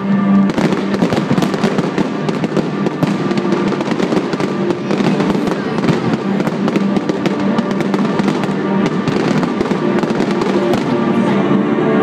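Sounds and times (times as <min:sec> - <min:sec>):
fireworks bursting and crackling: 0:00.0 - 0:12.0
music playing: 0:00.0 - 0:12.0.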